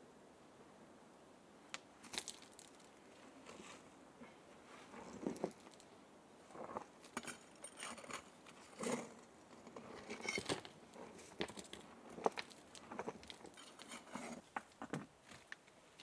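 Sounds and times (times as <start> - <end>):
hands scraping dry dirt: 2.0 - 5.9, 6.5 - 14.8.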